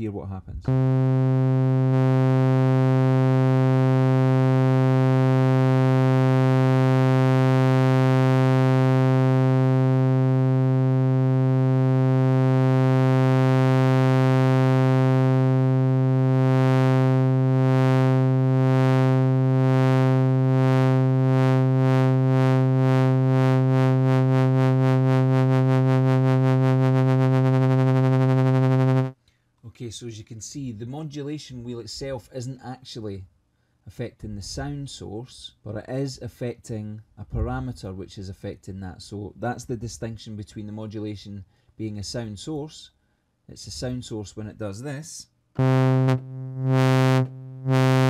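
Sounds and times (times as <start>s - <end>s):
wobbling synthesizer note: 0.7s - 29.2s, 45.6s - 48.0s.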